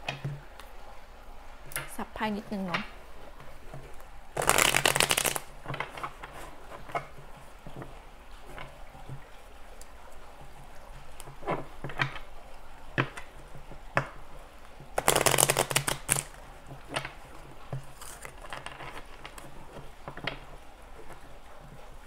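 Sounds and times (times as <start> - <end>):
riffle shuffle of cards: 3.8 - 7.1, 15.0 - 16.4, 17.8 - 19.6
cards tapping and slapping: 4.4 - 7.1, 15.0 - 17.2.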